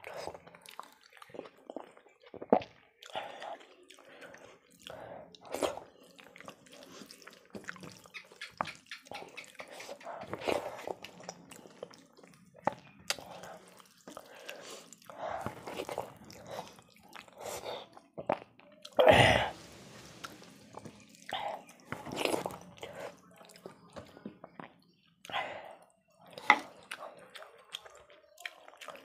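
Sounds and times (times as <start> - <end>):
lip smacking and chewing: 0.0 - 19.0, 20.1 - 29.0
fingers squelching food: 0.6 - 19.0.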